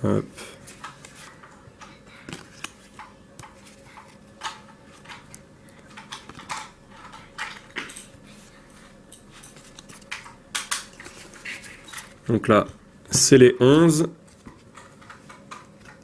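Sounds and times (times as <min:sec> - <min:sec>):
cards clicking and sliding: 0:02.2 - 0:06.5, 0:09.5 - 0:12.8.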